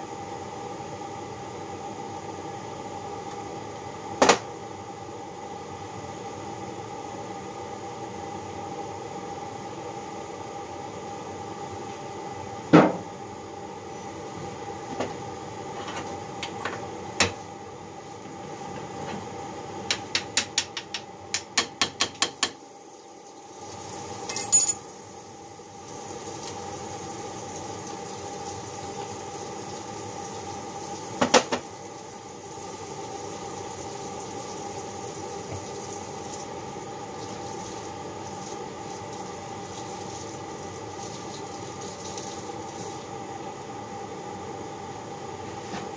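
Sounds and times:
steady background hum: 0.0s - 45.9s
metal tools clanking on workbench: 24.3s - 24.8s
bright metallic ring: 24.3s - 24.9s.

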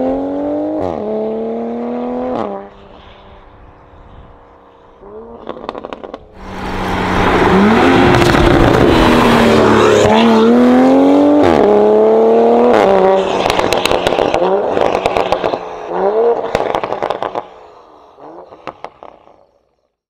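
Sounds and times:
car engine accelerating: 4.3s - 17.6s
exhaust pops and crackles: 8.0s - 9.2s, 13.3s - 15.6s, 16.4s - 17.5s.

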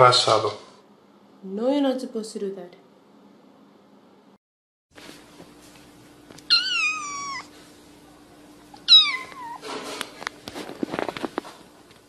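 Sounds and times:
kitten meowing: 6.5s - 7.5s, 8.7s - 9.6s
rustling with sharp clicks: 9.2s - 12.0s.

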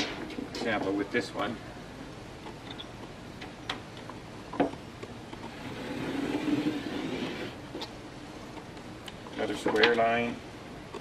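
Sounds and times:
pencil scraping along board: 5.5s - 7.6s.

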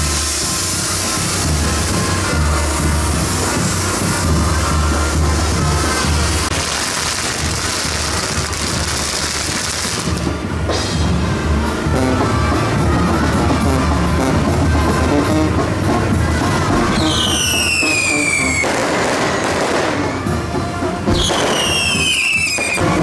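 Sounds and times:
falling firework whistles: 0.0s - 10.2s, 16.9s - 20.5s, 21.1s - 23.0s
fireworks hissing and crackling: 0.0s - 23.0s
music: 0.0s - 23.0s.

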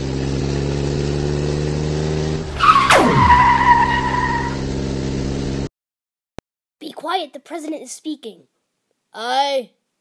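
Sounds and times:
tyres screeching: 2.5s - 4.7s.

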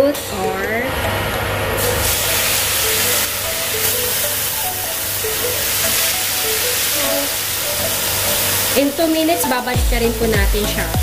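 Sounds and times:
background music melody: 0.4s - 11.0s
steaks sizzling in a frying pan: 1.8s - 10.3s.

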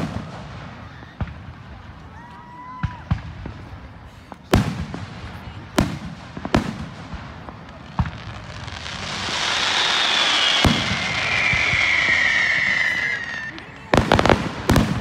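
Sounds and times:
firework hissing whistle: 8.6s - 14.9s
fireworks shells bursting: 9.0s - 15.0s.

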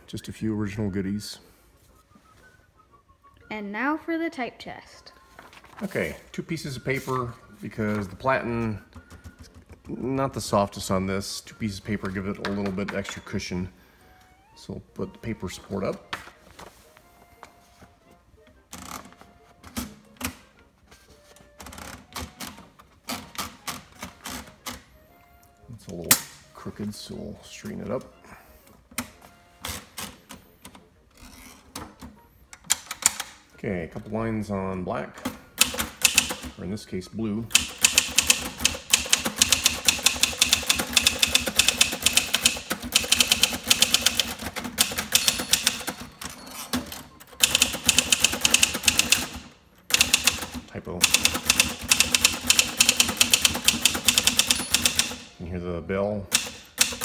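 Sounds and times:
typewriter ratchet clicking: 35.6s - 36.4s, 37.5s - 46.0s, 47.4s - 55.3s, 56.3s - 57.0s.

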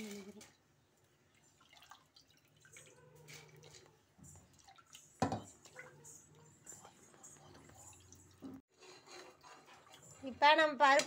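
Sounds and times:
watery drips and splashes: 1.2s - 6.0s.

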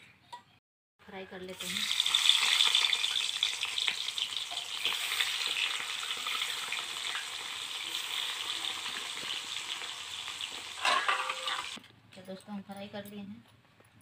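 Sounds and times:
fish sizzling in hot oil: 1.5s - 11.8s.

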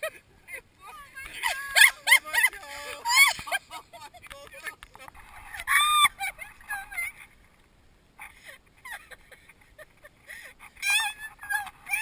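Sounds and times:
woman squealing: 10.8s - 12.0s.

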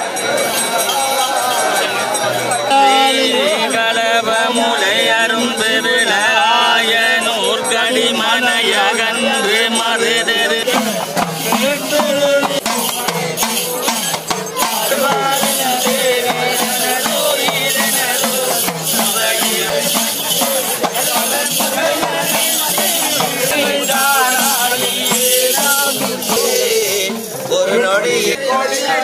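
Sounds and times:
men chanting together: 0.0s - 29.0s
metal rattle shaking: 10.6s - 27.8s.

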